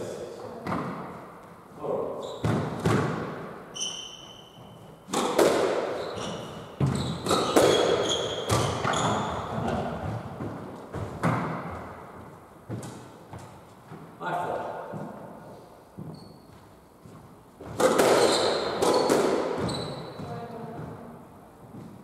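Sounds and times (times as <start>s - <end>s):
shoes squeaking on wooden floor: 2.2s - 3.0s, 3.7s - 5.2s, 5.9s - 14.1s, 15.9s - 21.1s
squash ball smacking: 2.4s - 3.6s, 5.1s - 6.1s, 6.8s - 11.9s, 17.6s - 20.2s.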